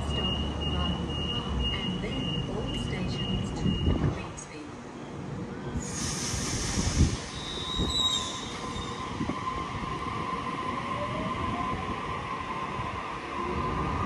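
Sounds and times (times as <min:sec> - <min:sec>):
high wheel squeal: 0:07.3 - 0:09.5.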